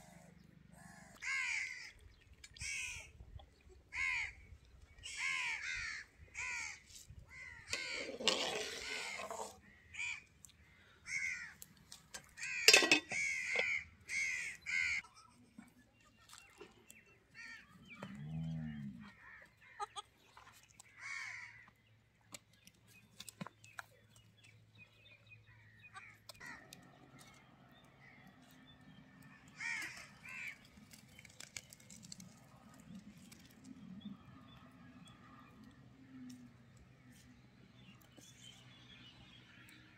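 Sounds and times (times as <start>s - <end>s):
crows cawing: 1.2s - 2.0s, 3.9s - 4.4s, 5.0s - 8.2s, 9.9s - 11.6s, 12.3s - 15.0s, 20.9s - 21.7s, 26.0s - 26.8s, 29.4s - 30.7s.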